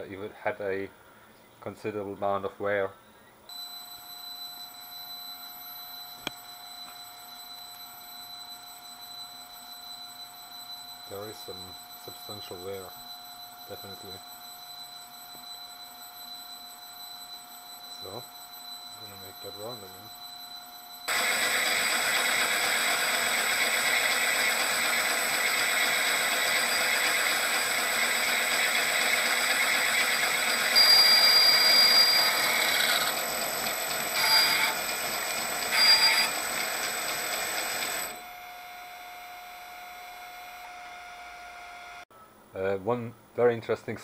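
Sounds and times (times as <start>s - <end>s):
faint steady hum: 0.0s - 21.1s
muffled metal lathe running: 21.1s - 40.7s.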